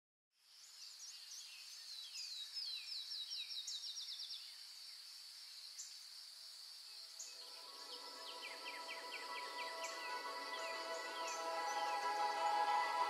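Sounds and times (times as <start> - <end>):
high insect drone: 4.6 - 13.0
soft music: 7.1 - 13.0
songbird whistles and trill: 7.2 - 13.0.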